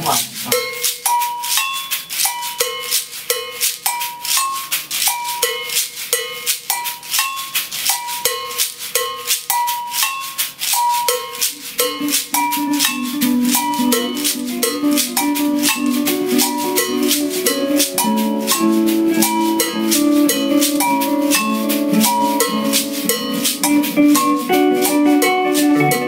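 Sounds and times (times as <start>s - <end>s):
pitched percussion notes: 11.0s - 24.8s.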